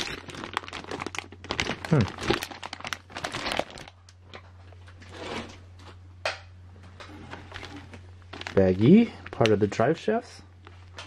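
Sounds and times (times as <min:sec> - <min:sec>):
plastic bag crinkling: 0:00.0 - 0:05.1, 0:07.2 - 0:10.0.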